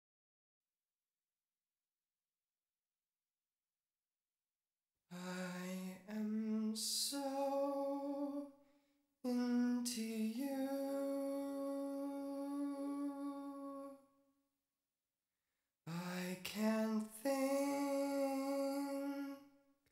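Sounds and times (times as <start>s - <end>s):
man singing unaccompanied: 5.1s - 8.6s, 9.3s - 14.0s, 15.9s - 19.5s.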